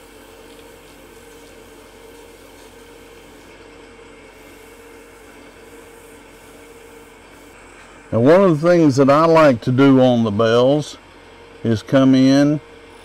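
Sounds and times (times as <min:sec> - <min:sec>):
sandpaper hissing on spinning wood: 0:00.0 - 0:03.6, 0:04.3 - 0:07.6
wood lathe humming: 0:00.0 - 0:11.8.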